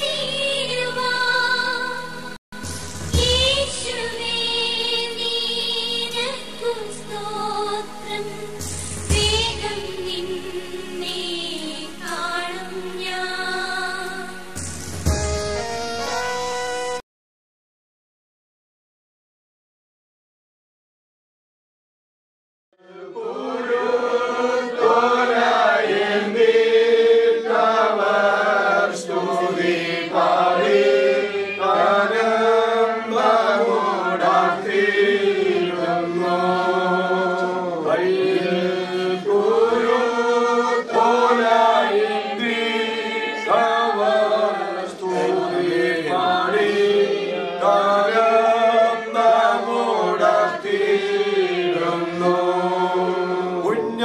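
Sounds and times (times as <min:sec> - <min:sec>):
group singing slow hymn: 0:03.2 - 0:14.6, 0:22.8 - 0:54.0.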